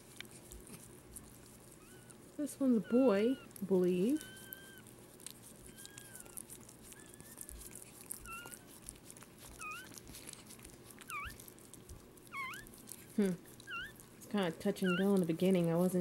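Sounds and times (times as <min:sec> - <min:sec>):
faint clicking and rustling: 0:00.0 - 0:16.0
puppy squeaking: 0:01.7 - 0:15.5.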